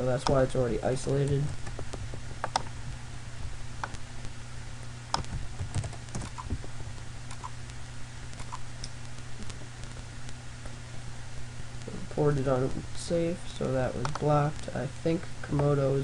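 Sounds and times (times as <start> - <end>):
low electrical hum: 0.0 - 16.0
keyboard and mouse clicks: 1.2 - 2.7, 5.1 - 6.6, 7.3 - 7.6, 8.4 - 9.6.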